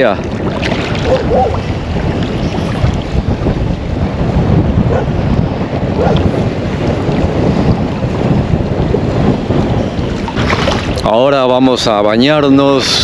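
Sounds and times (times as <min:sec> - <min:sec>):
river water lapping: 0:00.0 - 0:04.0, 0:08.9 - 0:11.2
wind buffeting microphone: 0:00.0 - 0:13.0.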